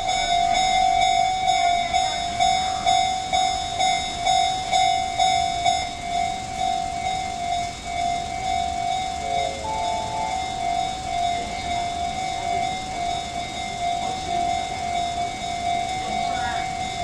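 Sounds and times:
level crossing alarm bell: 0:00.0 - 0:17.0.

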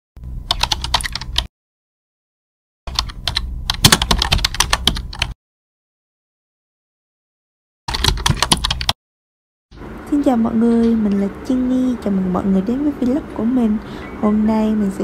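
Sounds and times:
keyboard typing: 0:00.5 - 0:01.5, 0:02.9 - 0:05.4, 0:07.9 - 0:09.0.

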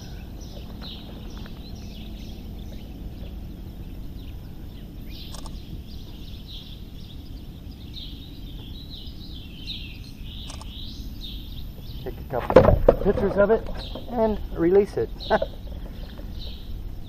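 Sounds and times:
birds chirping and twittering: 0:00.0 - 0:17.0
short clicks: 0:05.2 - 0:05.6, 0:10.4 - 0:10.8.

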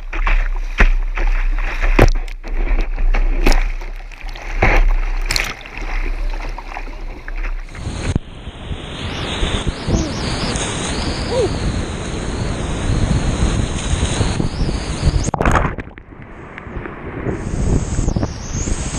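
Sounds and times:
paddle strokes: 0:00.0 - 0:08.3
water splashes: 0:00.0 - 0:08.4, 0:13.2 - 0:16.9
wind on the microphone: 0:00.0 - 0:18.9.

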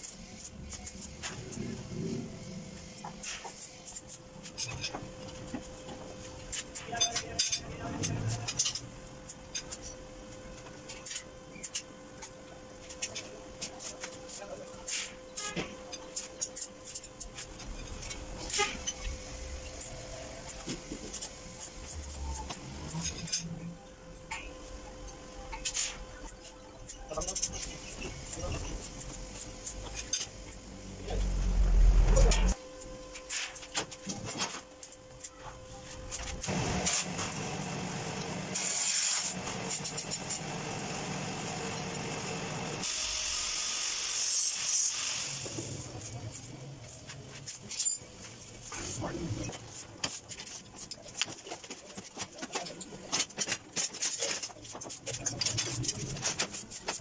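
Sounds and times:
steady hum: 0:00.0 - 0:43.4
welding arc buzzing hiss: 0:36.0 - 0:50.2.

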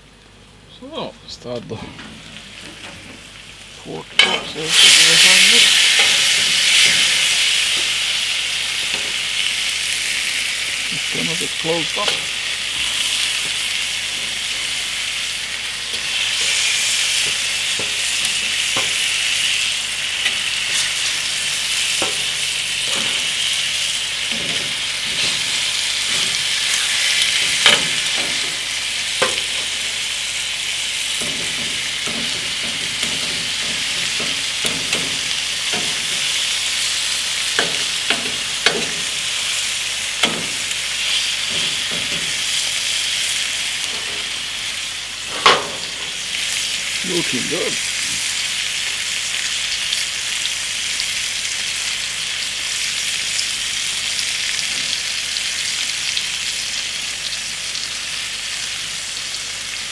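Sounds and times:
meat sizzling in frying pan: 0:02.2 - 0:59.9
metal tongs tapping pan: 0:04.2 - 0:08.0, 0:08.8 - 0:09.2, 0:12.0 - 0:12.4, 0:17.2 - 0:19.3, 0:22.0 - 0:23.5, 0:24.3 - 0:28.6, 0:29.2 - 0:29.8, 0:31.2 - 0:36.6, 0:37.5 - 0:39.3, 0:40.2 - 0:40.7, 0:41.4 - 0:42.6.

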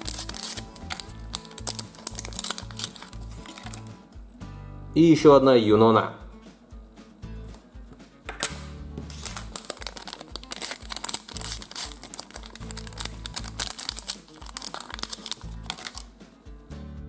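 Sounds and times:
packet tearing and crinkling: 0:00.0 - 0:03.9, 0:09.1 - 0:16.1
background music: 0:00.0 - 0:17.0.

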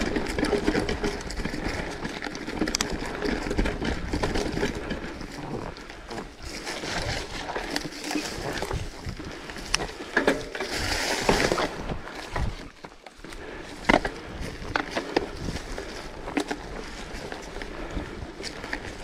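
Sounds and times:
wheels knocking and rattling: 0:00.0 - 0:19.0.

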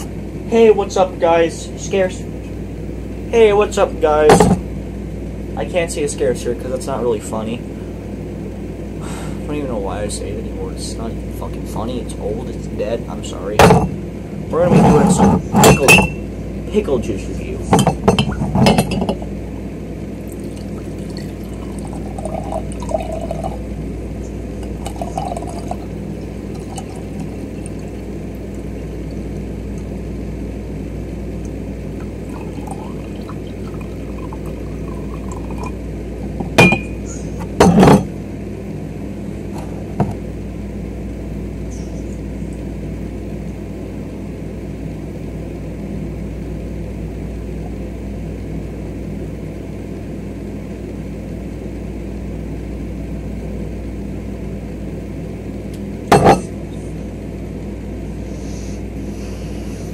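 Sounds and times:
glass clinking: 0:15.6 - 0:16.2, 0:36.6 - 0:37.0, 0:56.1 - 0:56.5
liquid trickling and glugging: 0:20.2 - 0:23.6, 0:24.6 - 0:29.2, 0:32.0 - 0:35.8.

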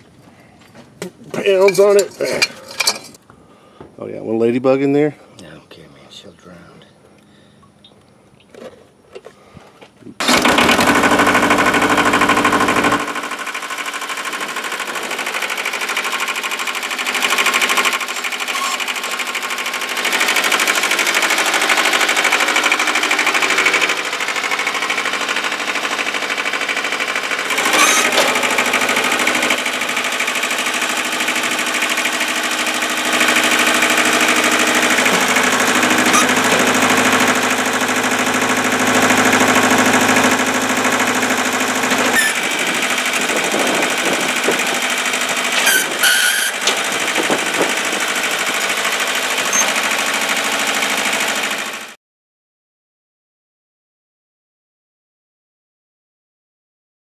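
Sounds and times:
metal clank: 0:01.6 - 0:03.2
diesel tractor engine under load: 0:10.2 - 0:51.8
loader hydraulics: 0:27.5 - 0:28.7, 0:34.1 - 0:37.0, 0:42.1 - 0:42.7, 0:45.5 - 0:47.8.

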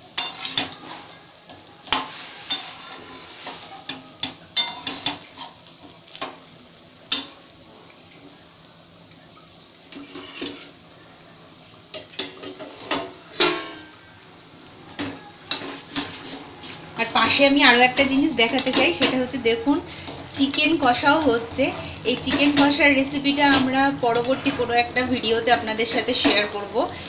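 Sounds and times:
frying hiss: 0:00.0 - 0:27.0
spatula scraping a metal pan: 0:00.2 - 0:05.6, 0:09.9 - 0:10.8, 0:12.1 - 0:14.0, 0:15.0 - 0:17.4, 0:18.4 - 0:26.6.

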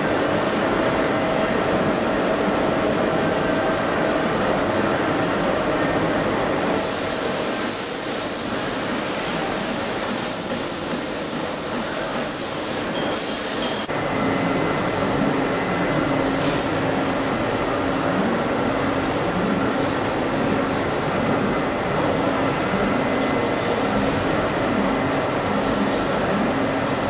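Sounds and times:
machinery hum and hiss: 0:00.0 - 0:27.0.

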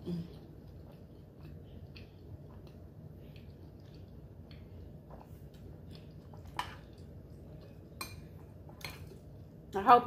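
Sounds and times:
person chewing: 0:00.0 - 0:09.6
low steady hum: 0:00.0 - 0:10.0.

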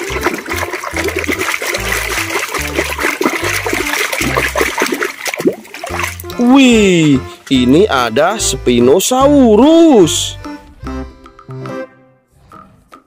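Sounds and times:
hand squelching in muddy water: 0:00.0 - 0:07.8
water sloshing and trickling: 0:00.0 - 0:08.5.

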